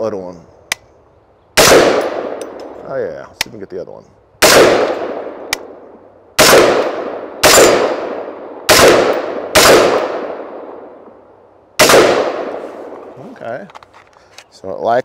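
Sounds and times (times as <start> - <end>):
rifle shots echoing: 1.6 - 2.7, 4.4 - 5.8, 6.4 - 11.0, 11.8 - 13.0.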